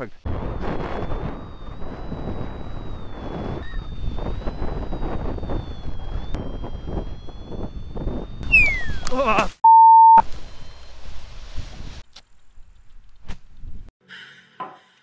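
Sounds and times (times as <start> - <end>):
wind buffeting microphone: 0.3 - 9.1
falling tone: 0.3 - 9.2
thin high whine: 0.4 - 9.3
steady single-pitch beep: 9.7 - 10.2.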